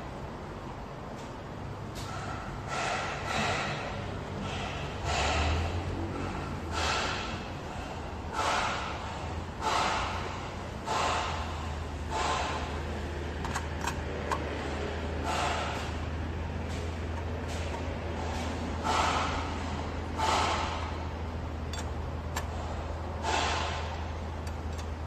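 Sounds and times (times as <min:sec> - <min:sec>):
person breathing heavily: 0:02.1 - 0:13.0.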